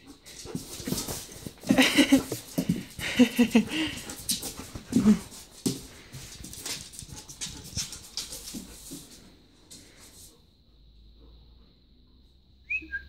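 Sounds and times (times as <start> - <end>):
dog nails clicking on floor: 0.0 - 10.3.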